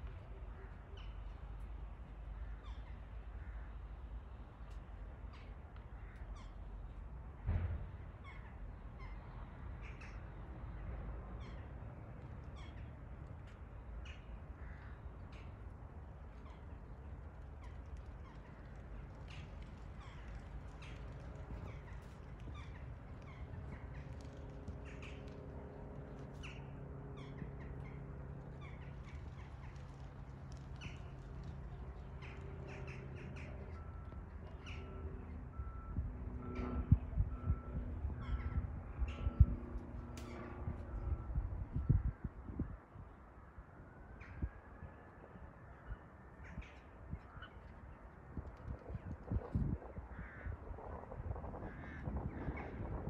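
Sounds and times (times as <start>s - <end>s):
jet engines taxiing: 16.6s - 42.0s
crows cawing: 50.1s - 50.6s, 51.7s - 52.6s.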